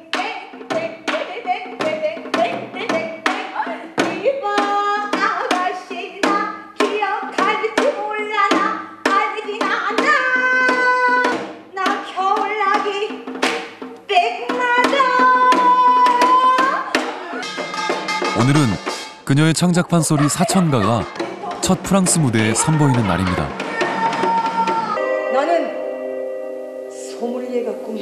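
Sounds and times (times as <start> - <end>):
woman singing: 0.0 - 13.2, 14.1 - 17.8, 26.9 - 28.0.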